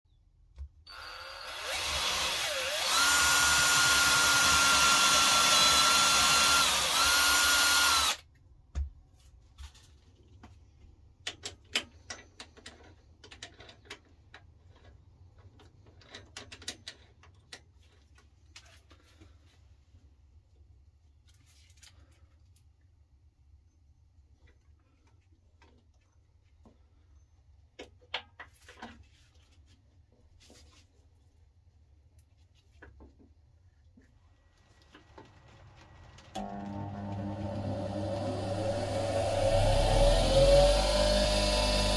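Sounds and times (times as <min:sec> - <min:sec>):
cordless drill whining: 0:00.9 - 0:08.2, 0:36.2 - 0:41.9.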